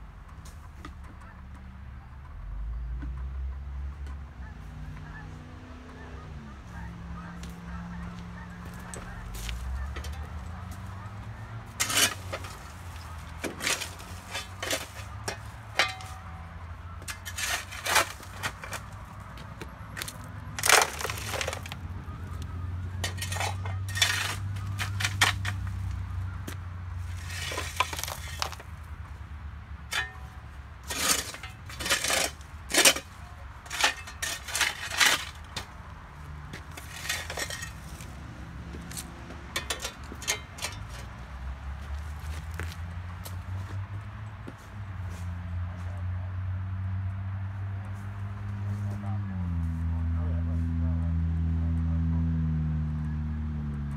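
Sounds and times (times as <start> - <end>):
shovel scraping ground: 8.6 - 19.2, 20.0 - 21.8, 22.9 - 26.0, 27.0 - 28.7, 29.9 - 35.8, 36.5 - 41.1, 41.8 - 43.8
stones rattling into truck bed: 11.8 - 16.3, 17.0 - 19.0, 20.0 - 21.8, 23.0 - 25.7, 27.1 - 28.7, 30.8 - 35.7, 36.5 - 38.1.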